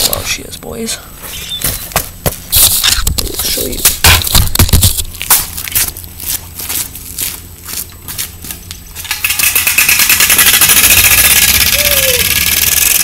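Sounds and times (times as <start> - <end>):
scooter engine rattling buzz: 8.9 - 13.0.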